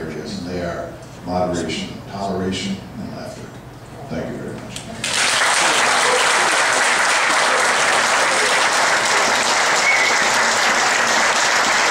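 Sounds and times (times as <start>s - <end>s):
audience applauding: 5.0s - 11.9s.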